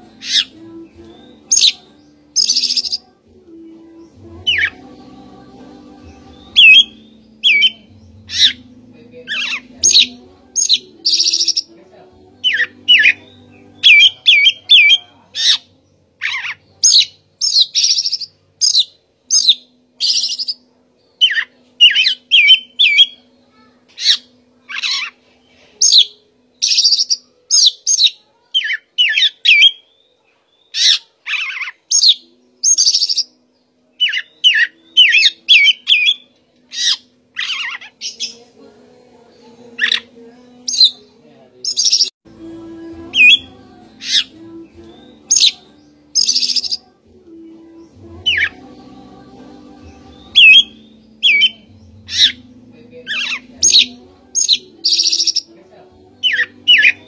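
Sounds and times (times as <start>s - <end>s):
bird singing whistled notes: 0.3s - 3.0s, 6.4s - 8.6s, 21.2s - 23.2s, 25.8s - 31.0s, 31.9s - 33.4s, 34.0s - 38.2s, 41.7s - 42.1s, 43.2s - 46.9s, 50.2s - 52.4s, 53.1s - 55.5s.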